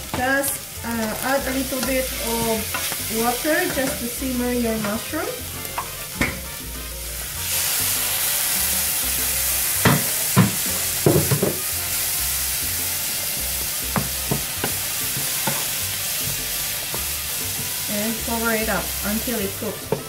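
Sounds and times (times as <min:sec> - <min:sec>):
food sizzling in a frying pan: 0:00.0 - 0:20.0
wooden spoon knocking on a pan: 0:09.8 - 0:11.6, 0:13.9 - 0:17.8.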